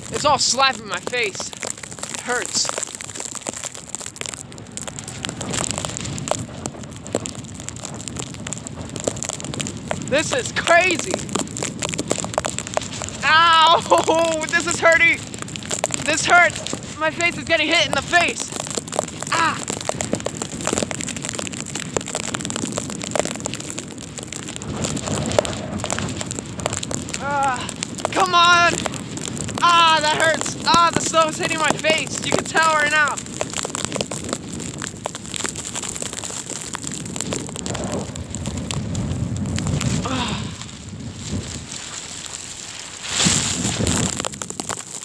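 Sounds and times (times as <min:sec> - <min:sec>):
snow clicking on microphone: 0:00.0 - 0:45.0
wind buffeting microphone: 0:00.0 - 0:45.0.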